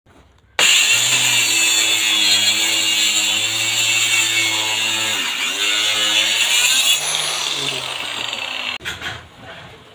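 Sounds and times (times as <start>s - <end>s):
circular saw cutting wood: 0.6s - 8.8s.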